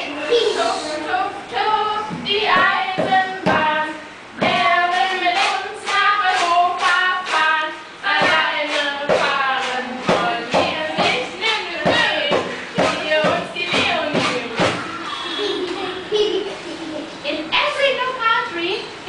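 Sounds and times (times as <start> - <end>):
group of voices singing: 0.0 - 15.0.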